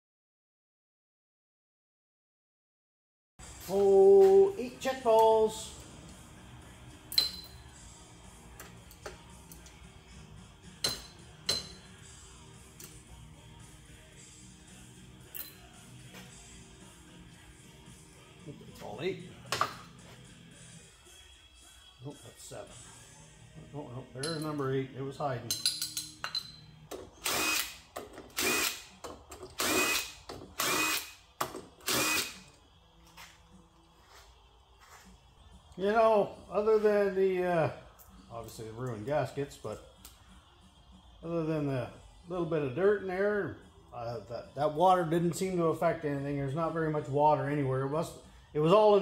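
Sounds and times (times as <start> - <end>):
faint background music: 3.4 - 49.0
cordless power tool whine: 27.2 - 28.9, 29.6 - 31.2, 31.8 - 32.6.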